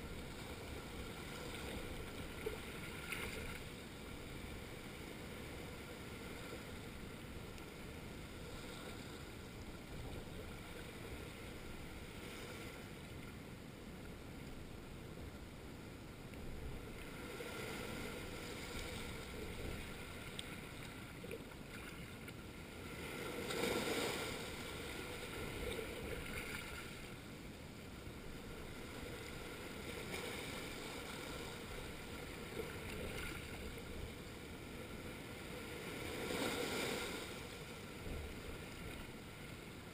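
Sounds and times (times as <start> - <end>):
waves washing over rocky shore: 22.9 - 27.0.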